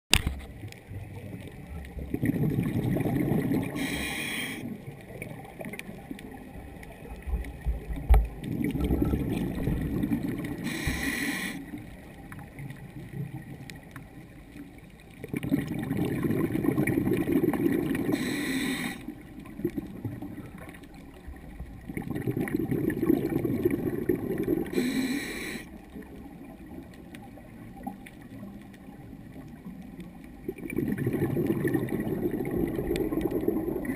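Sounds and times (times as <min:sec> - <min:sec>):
diver exhaling bubbles underwater: 0:02.0 - 0:04.9, 0:08.4 - 0:11.6, 0:15.2 - 0:20.6, 0:21.8 - 0:25.6, 0:30.4 - 0:33.9
regulator hiss: 0:03.8 - 0:04.7, 0:10.6 - 0:11.7, 0:18.1 - 0:19.0, 0:24.8 - 0:25.7.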